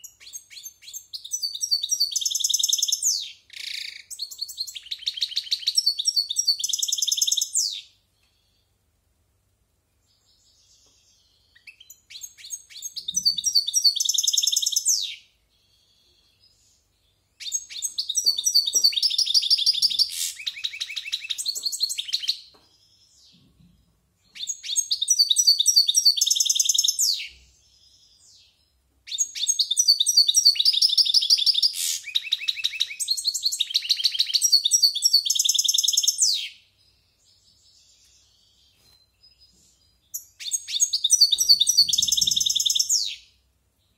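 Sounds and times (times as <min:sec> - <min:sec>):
goldfinch twittering song: 0:10.4 - 0:22.6, 0:24.3 - 0:43.4.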